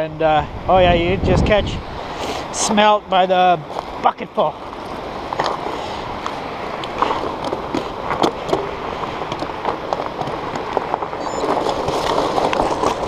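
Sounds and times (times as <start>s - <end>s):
bike tyres crunching on gravel: 4.6s - 13.0s.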